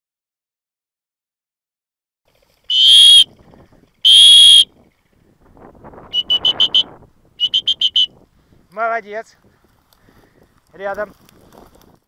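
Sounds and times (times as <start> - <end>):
dog whistle blasts: 2.7 - 3.3, 4.0 - 4.7, 6.1 - 8.2
dog whistle short pips: 2.7 - 3.3, 4.1 - 4.7, 6.1 - 8.1.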